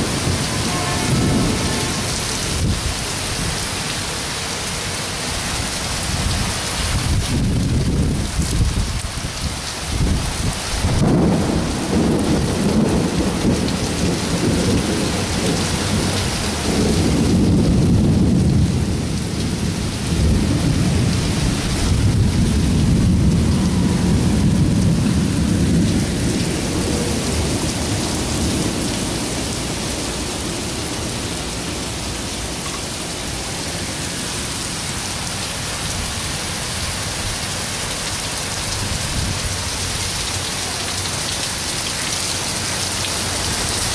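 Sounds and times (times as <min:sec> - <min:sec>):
thunder rumbling: 0:00.0 - 0:03.7, 0:10.0 - 0:32.5
heavy rain on pavement: 0:00.0 - 0:43.9.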